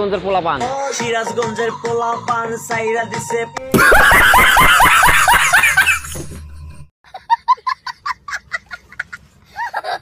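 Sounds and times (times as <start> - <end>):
man laughing loudly: 3.7 - 10.0
small child laughing: 3.8 - 6.4, 7.1 - 10.0.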